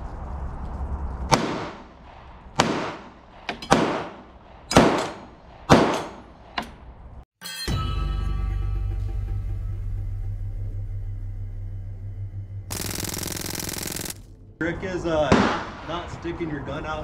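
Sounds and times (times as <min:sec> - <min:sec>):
pistol shots echoing: 0:02.6 - 0:06.2.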